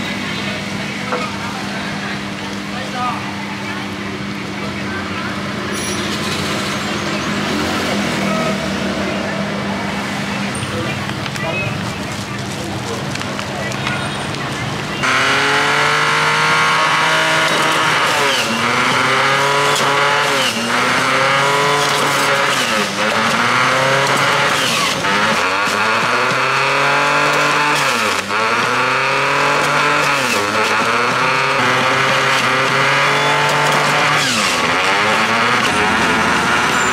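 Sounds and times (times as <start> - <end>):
juicer motor whining: 15.1 - 36.8.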